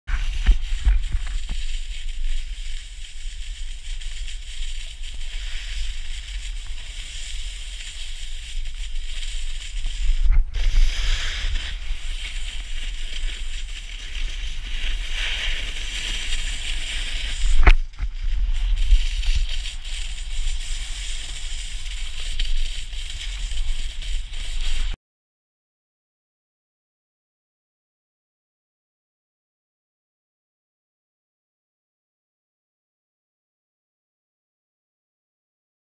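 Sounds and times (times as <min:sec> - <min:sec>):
snowboard scraping on snow: 0:00.1 - 0:25.0
wind rumble on microphone: 0:00.1 - 0:25.0.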